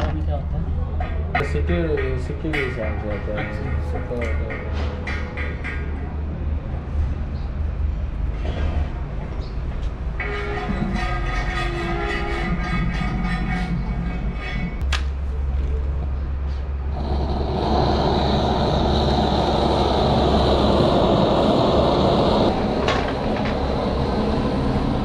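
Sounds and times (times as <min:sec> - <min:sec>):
low hum: 0:10.1 - 0:25.0
gas torch hissing: 0:16.9 - 0:25.0.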